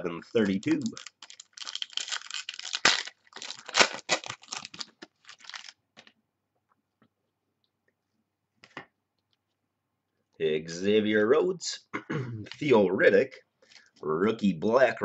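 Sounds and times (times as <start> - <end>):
foil wrapper tearing and crinkling: 0.4 - 5.8
cards rustling: 0.4 - 6.1.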